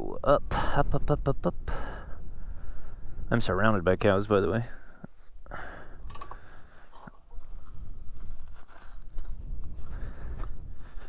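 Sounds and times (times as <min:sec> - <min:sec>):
wind on microphone: 0:07.3 - 0:11.0.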